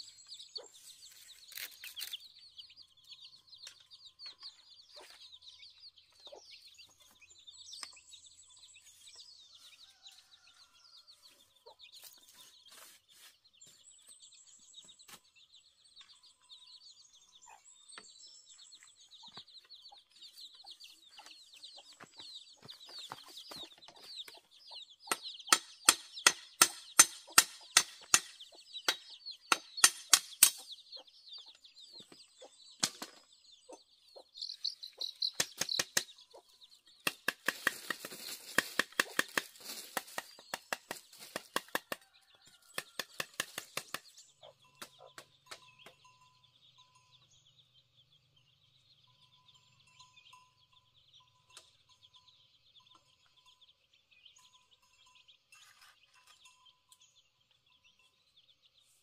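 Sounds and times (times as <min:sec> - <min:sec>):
machete chopping bamboo: 0:25.1 - 0:30.7, 0:35.3 - 0:36.2, 0:37.0 - 0:42.0, 0:42.7 - 0:44.1
faint high chirping: 0:43.9 - 0:59.0.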